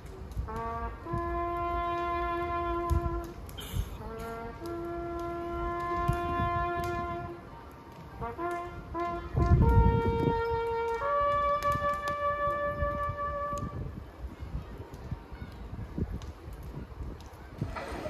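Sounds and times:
brass horn playing slow call: 0:00.5 - 0:07.4, 0:08.2 - 0:13.8.

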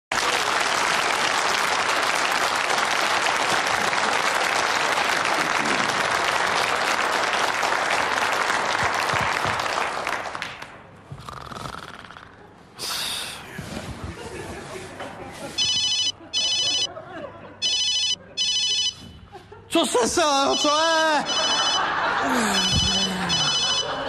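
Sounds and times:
audience applauding: 0:00.1 - 0:11.0.

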